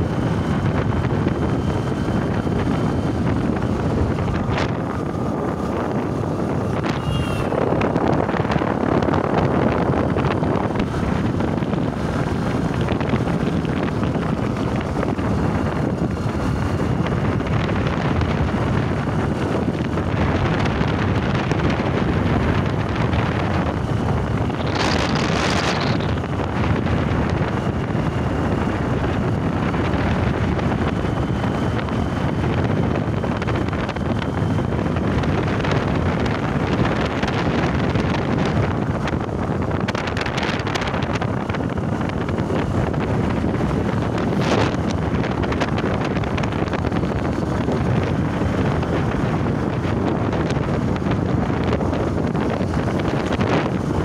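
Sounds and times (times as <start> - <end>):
moving vehicle road noise: 0.0 - 54.0
wind rushing over microphone: 0.0 - 54.0.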